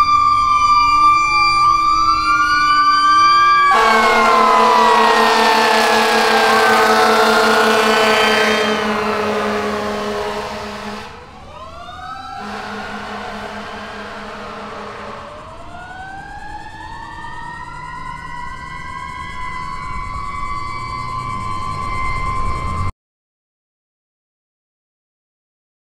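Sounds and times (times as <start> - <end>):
fire engine siren wailing: 0.0 - 22.9
low steady horn tone: 3.6 - 11.5, 12.3 - 15.8.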